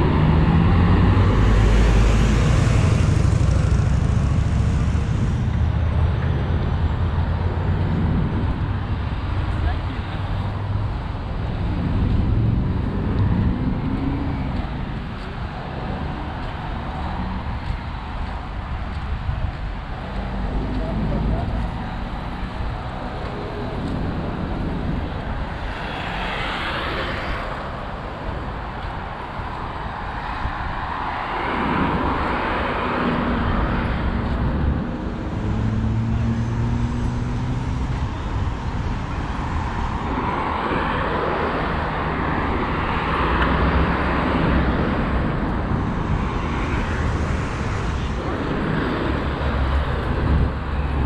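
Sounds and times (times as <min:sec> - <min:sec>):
engine low hum: 0:00.0 - 0:08.8
cars passing: 0:00.0 - 0:51.0.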